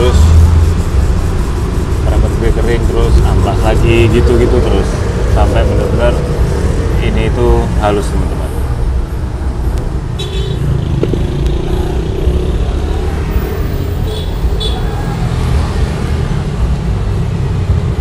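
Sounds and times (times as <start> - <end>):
road traffic rumble: 0.0 - 18.0
motorcycle engine: 10.0 - 14.8.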